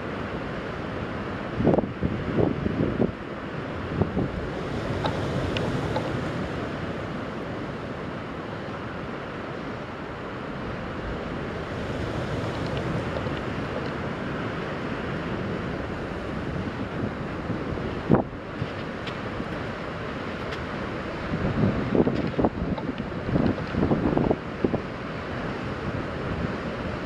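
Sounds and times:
choppy water rushing: 0:00.0 - 0:27.0
wind buffeting microphone: 0:10.9 - 0:27.0.

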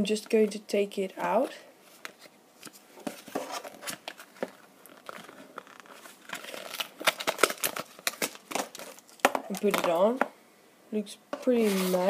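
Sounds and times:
packaging rustling and crinkling: 0:01.9 - 0:10.0.

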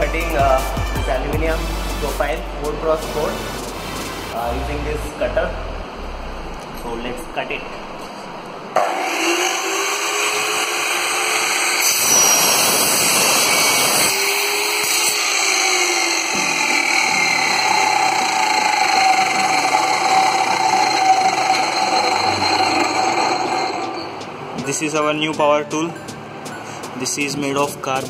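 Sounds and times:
saw cutting through metal: 0:08.8 - 0:24.3.

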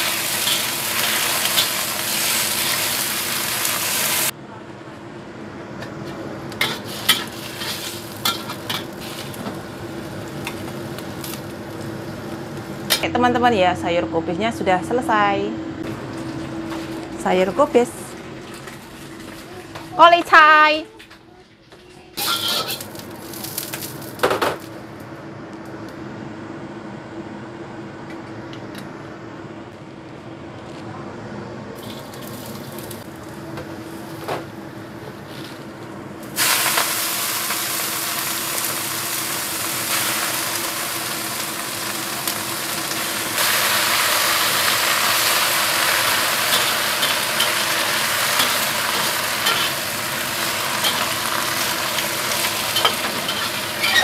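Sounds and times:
greens sizzling in oil: 0:00.0 - 0:04.3, 0:06.6 - 0:13.0, 0:22.2 - 0:24.2, 0:31.8 - 0:33.0, 0:36.3 - 0:54.0
spatula scraping wok: 0:06.6 - 0:09.4, 0:22.2 - 0:23.0, 0:45.2 - 0:54.0.

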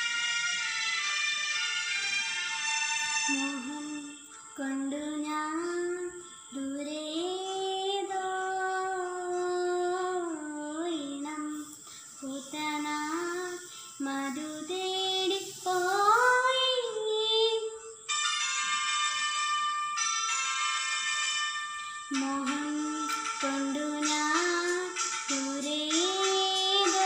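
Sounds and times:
girl singing unaccompanied: 0:03.0 - 0:18.1, 0:22.1 - 0:27.0.

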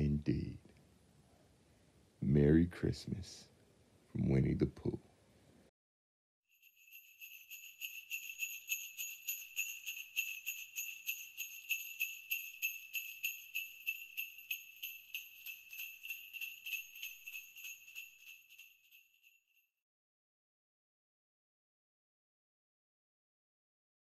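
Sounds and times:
jingle bells shaking: 0:06.5 - 0:19.7.

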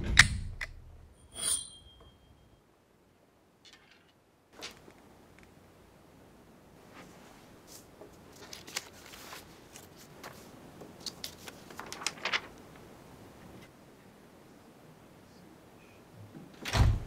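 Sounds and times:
room hiss: 0:00.0 - 0:17.0
faint rustling and light clicks: 0:06.8 - 0:13.8.

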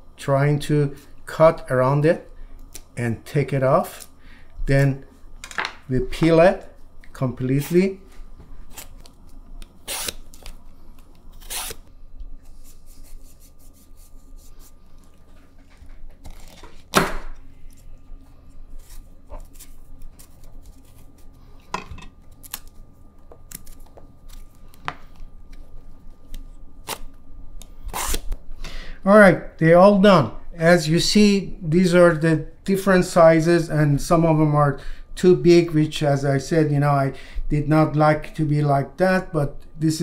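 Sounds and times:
peeler scraping vegetable skin: 0:09.7 - 0:10.5, 0:11.1 - 0:11.8, 0:27.9 - 0:28.3.

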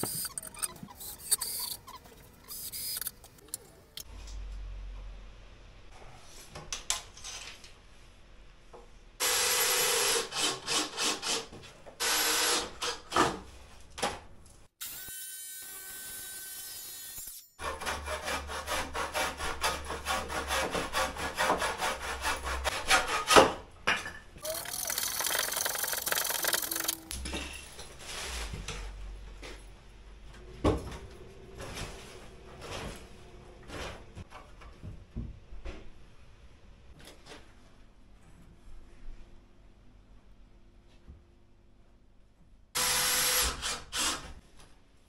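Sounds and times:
hand saw cutting wood: 0:10.0 - 0:13.4, 0:16.6 - 0:23.6.

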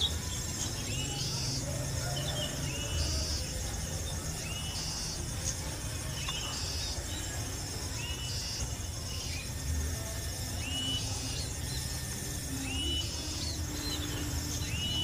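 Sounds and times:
insects buzzing: 0:00.0 - 0:15.0
bird whistled call: 0:12.5 - 0:15.0.

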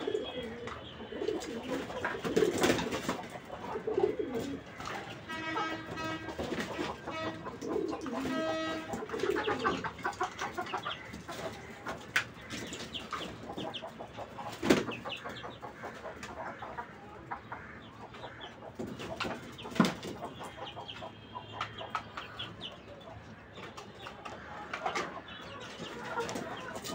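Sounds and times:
chicken calling: 0:00.0 - 0:26.9
pigeons cooing: 0:00.0 - 0:26.9
roosters scuffling: 0:00.1 - 0:15.9, 0:18.8 - 0:20.4, 0:23.4 - 0:26.9.

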